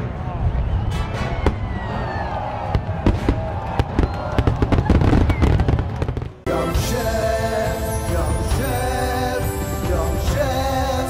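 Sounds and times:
background music: 0.0s - 3.9s, 6.1s - 11.0s
fireworks bangs and crackles: 0.8s - 1.8s, 2.6s - 6.5s
music jingle: 6.5s - 11.0s.

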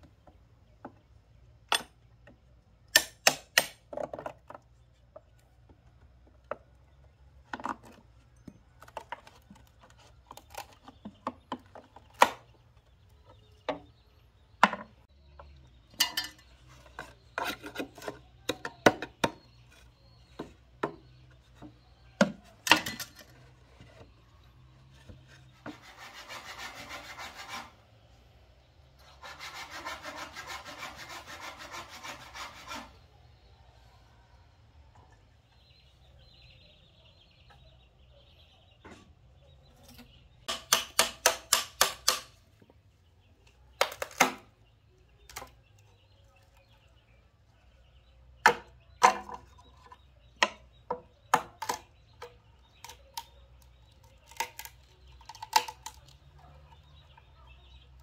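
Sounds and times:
machete chopping bamboo: 2.9s - 4.0s, 12.2s - 12.4s, 40.5s - 42.4s, 43.8s - 44.5s.

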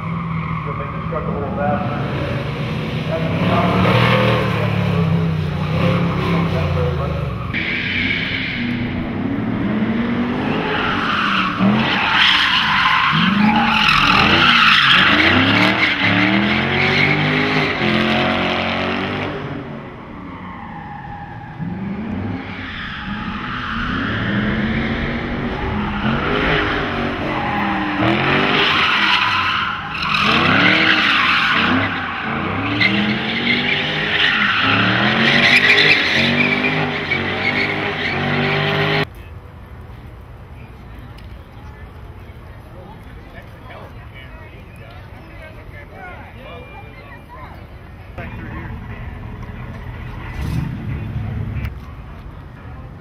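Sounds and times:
car engine revving: 0.0s - 20.2s, 20.8s - 39.1s, 48.2s - 51.9s
tire squeal: 0.0s - 39.1s, 46.0s - 51.7s.

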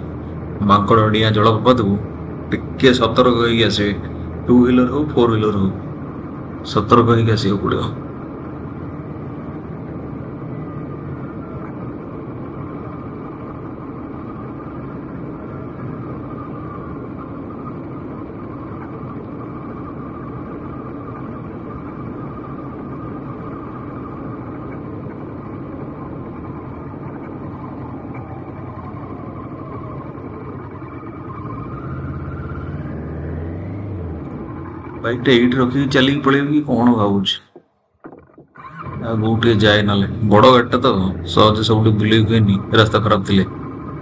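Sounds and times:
road and wind noise: 0.0s - 44.0s
motorcycle engine running: 8.0s - 35.5s.

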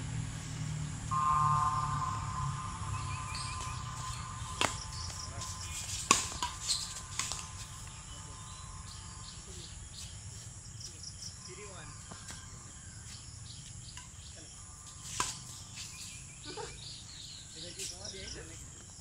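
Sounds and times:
insects chirring: 0.5s - 19.0s
rackets hitting shuttlecock: 1.1s - 8.1s
steady tone: 1.1s - 9.5s.

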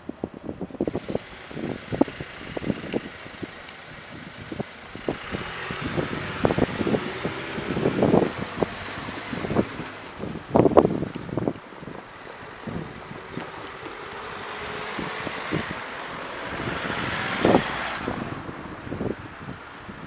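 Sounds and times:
cars passing by: 0.0s - 20.0s.

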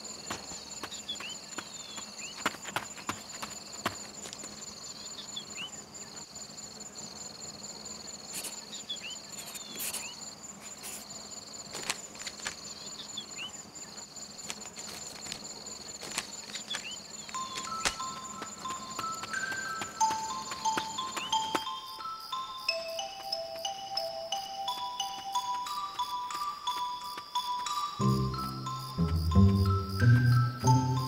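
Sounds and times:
insects trilling: 0.0s - 31.0s
bell-like music notes: 17.4s - 31.0s.

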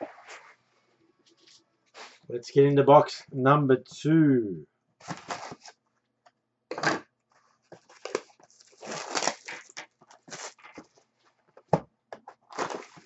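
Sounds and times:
wrapper rustling: 5.0s - 5.8s, 7.5s - 11.1s, 12.4s - 13.0s
plastic wrap crinkling: 7.6s - 11.1s, 12.4s - 13.0s.

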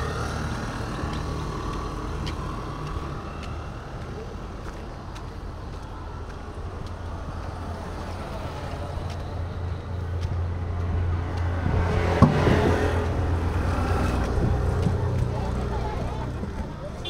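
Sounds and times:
vehicle passing by: 0.0s - 17.0s.

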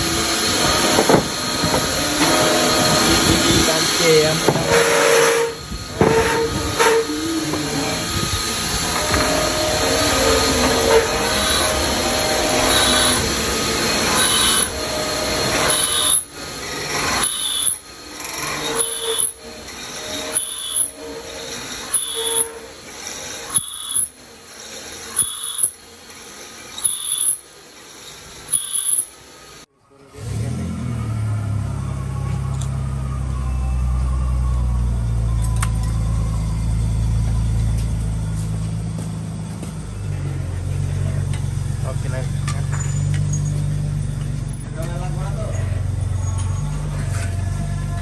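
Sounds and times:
machine tool cutting metal: 0.0s - 29.6s
shrill tone: 0.1s - 16.3s, 18.5s - 22.8s, 31.1s - 37.8s.

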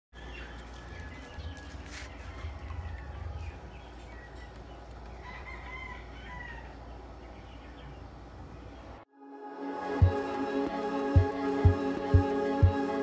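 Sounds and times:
rooster crowing: 5.2s - 6.8s.

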